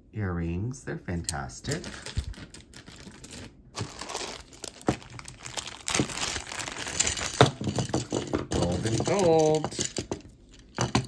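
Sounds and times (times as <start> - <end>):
packaging crinkling and rustling: 1.7 - 7.9.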